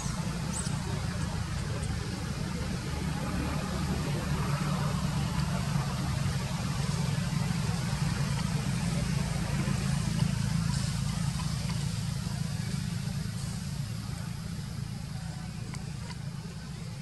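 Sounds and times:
engine idling: 0:00.0 - 0:17.0
faint hiss: 0:03.8 - 0:17.0.

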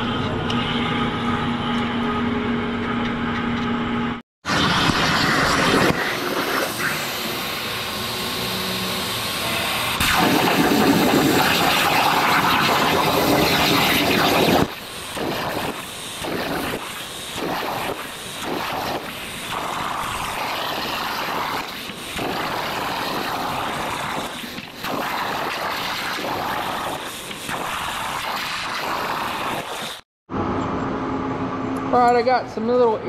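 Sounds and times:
plasma cutter hissing: 0:04.5 - 0:30.0.

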